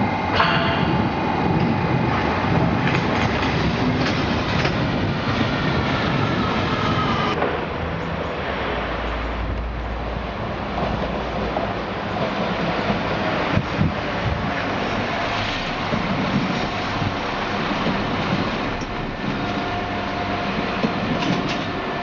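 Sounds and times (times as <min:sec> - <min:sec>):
rail noise: 0:00.0 - 0:22.0
train whine: 0:00.0 - 0:22.0
diesel engine drone: 0:13.9 - 0:22.0.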